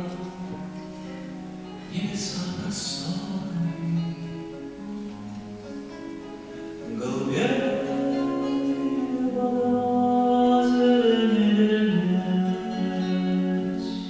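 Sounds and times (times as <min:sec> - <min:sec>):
acoustic guitar: 0:00.0 - 0:14.0
string ensemble: 0:00.0 - 0:14.0
man singing into a microphone: 0:01.9 - 0:04.5, 0:06.8 - 0:14.0.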